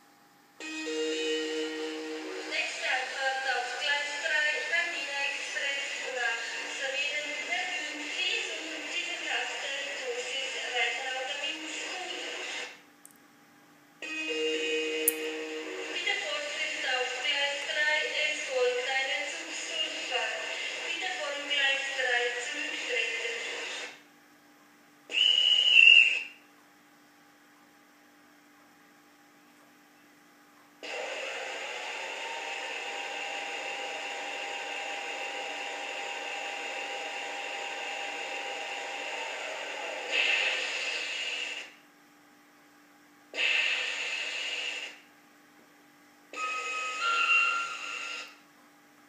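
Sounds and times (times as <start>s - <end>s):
faint steady hum: 0.0s - 49.0s
model train horn blast: 0.6s - 2.5s, 14.0s - 15.8s
model train steam hiss: 40.0s - 41.7s, 43.4s - 45.0s.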